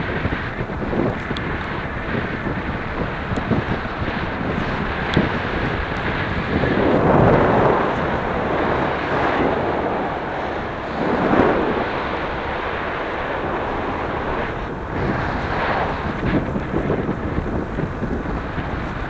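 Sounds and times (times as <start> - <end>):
wind buffeting microphone: 0.0 - 19.0.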